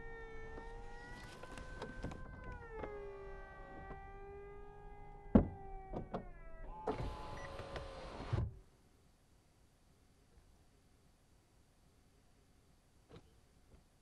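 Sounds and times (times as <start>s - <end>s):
electric motor whine: 0.0s - 8.3s.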